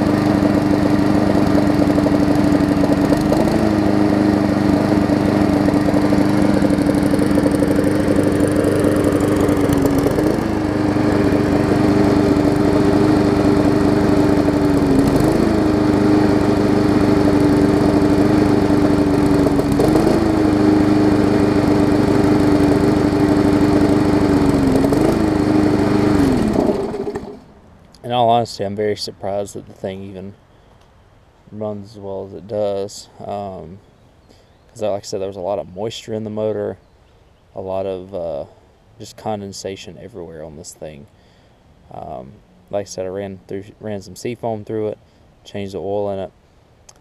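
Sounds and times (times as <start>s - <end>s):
lawn mower engine running: 0.0s - 30.0s.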